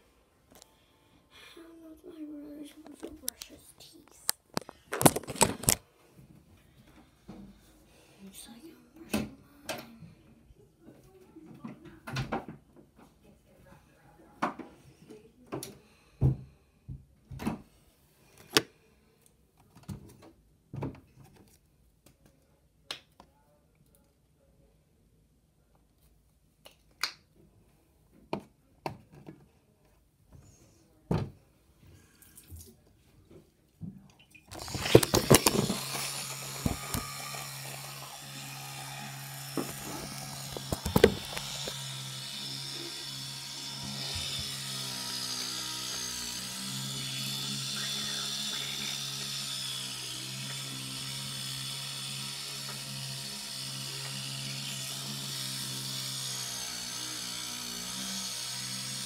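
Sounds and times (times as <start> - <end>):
electric toothbrush buzzing: 34.5 - 59.0.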